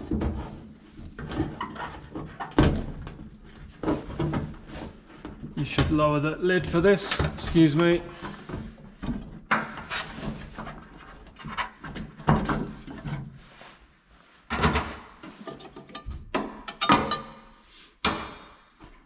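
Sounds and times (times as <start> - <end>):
parts rubbing and scraping: 6.7 - 16.8.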